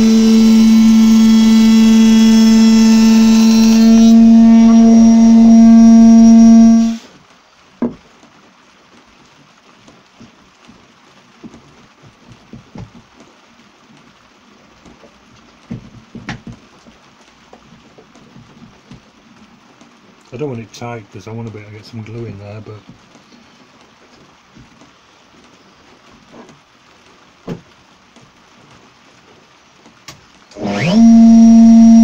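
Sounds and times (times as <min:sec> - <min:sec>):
router whining: 0:00.0 - 0:07.0, 0:30.6 - 0:32.0
faint knocks of board: 0:07.8 - 0:08.0, 0:27.4 - 0:27.7.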